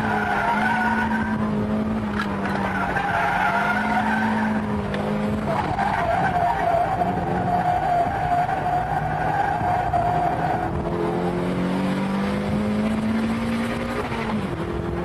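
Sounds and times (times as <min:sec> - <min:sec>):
car tyres squealing: 0:00.0 - 0:10.8
car engine running hard: 0:00.0 - 0:15.0.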